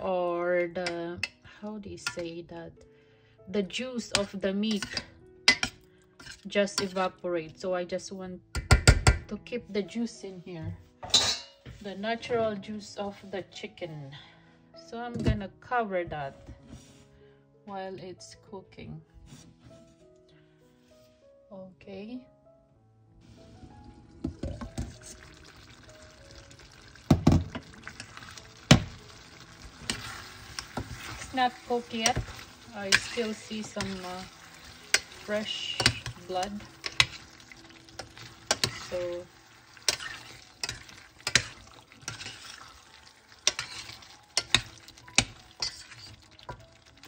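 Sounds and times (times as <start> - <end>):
metal clanks on pot: 4.1 - 7.0, 8.6 - 9.3, 11.0 - 11.7, 31.9 - 37.4, 38.0 - 39.1, 39.8 - 42.7, 43.4 - 46.6
metal spoon stirring: 4.1 - 7.1, 27.6 - 47.0
glass lid clinking: 11.0 - 11.6
faint simmering sizzle: 23.2 - 47.0
sauce bubbling: 23.4 - 47.0.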